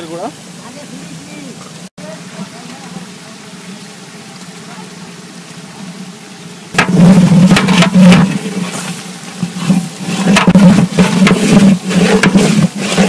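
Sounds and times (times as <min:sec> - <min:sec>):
low hum: 0:02.3 - 0:13.0
ladle scraping metal pot: 0:06.8 - 0:13.0.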